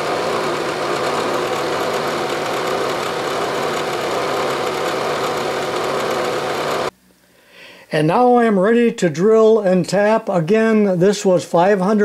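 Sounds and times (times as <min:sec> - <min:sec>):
milling machine running: 0:00.0 - 0:06.9.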